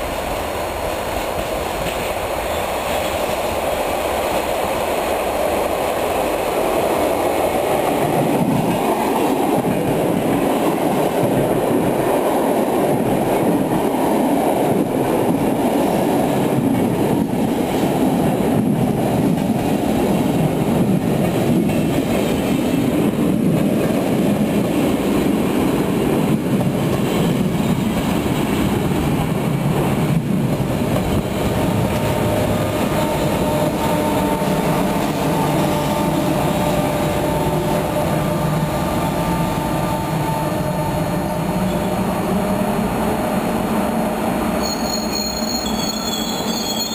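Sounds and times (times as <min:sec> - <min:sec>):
train wheels rumbling on rail: 0:00.0 - 0:46.9
locomotive whine: 0:28.2 - 0:46.9
wheel squeal: 0:44.6 - 0:46.9.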